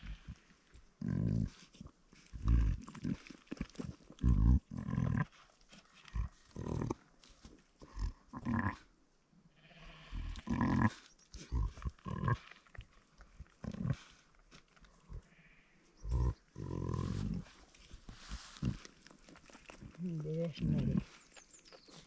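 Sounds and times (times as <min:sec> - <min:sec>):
short low sheep calls: 0:09.5 - 0:11.0.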